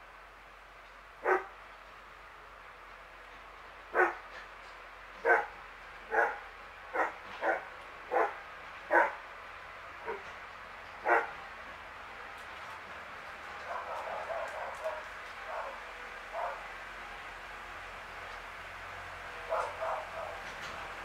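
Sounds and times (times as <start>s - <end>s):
dog barking: 1.2s - 1.5s, 4.0s - 4.2s, 5.2s - 5.5s, 6.1s - 6.4s, 7.0s - 9.2s, 10.0s - 10.2s, 11.0s - 11.3s, 16.4s - 16.6s, 19.5s - 20.4s.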